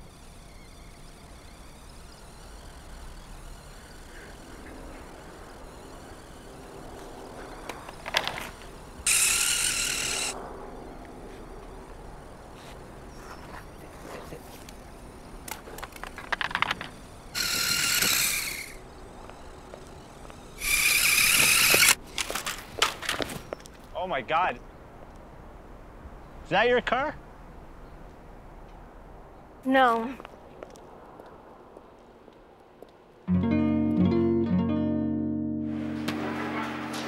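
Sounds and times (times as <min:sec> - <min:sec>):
toy car electric motor whirring: 0:00.0 - 0:12.4, 0:14.5 - 0:22.6.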